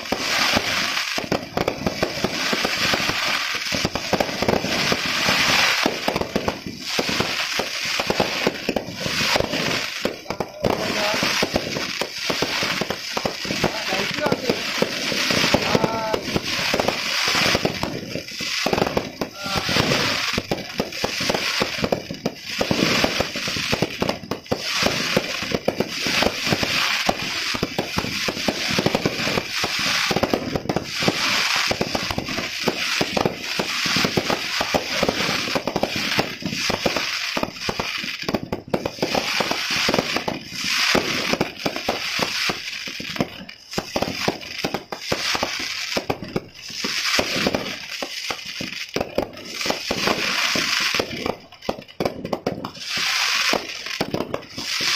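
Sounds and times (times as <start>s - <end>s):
fireworks cracking and popping: 0.0s - 54.9s
fireworks rushing hiss: 0.0s - 54.9s.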